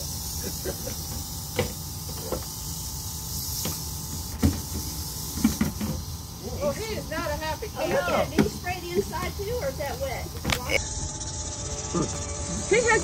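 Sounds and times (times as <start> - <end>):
rattlesnake rattling buzz: 0.0 - 13.0.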